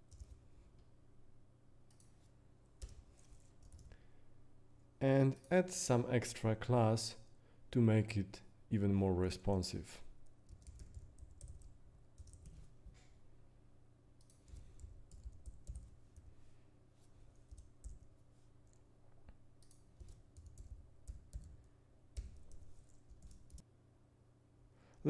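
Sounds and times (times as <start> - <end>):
faint keyboard typing: 0.0 - 0.9, 1.9 - 4.0, 10.2 - 13.1, 14.2 - 16.3, 17.3 - 23.7.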